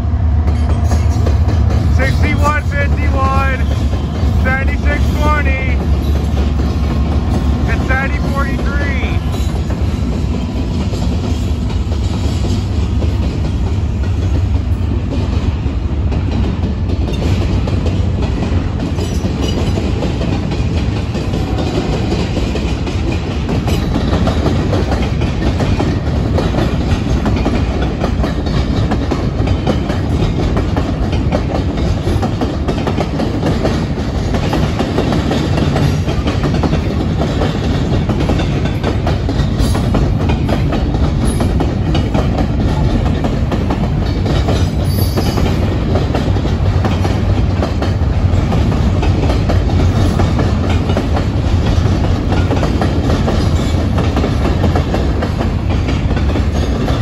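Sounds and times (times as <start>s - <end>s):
freight train rumble: 0.0s - 57.0s
wheels clacking over rail joints: 0.3s - 57.0s.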